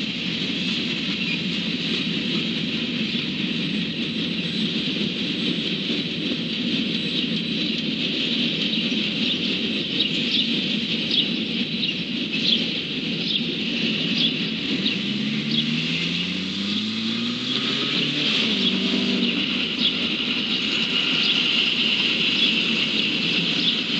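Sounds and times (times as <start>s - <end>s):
train wheels rumbling on rails: 0.0s - 23.9s
vehicle engine accelerating: 12.5s - 23.9s.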